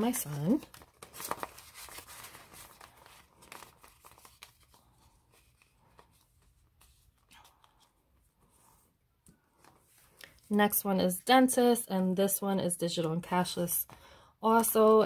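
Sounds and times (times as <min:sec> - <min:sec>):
paper and plastic pouch crinkling: 0:00.0 - 0:07.5.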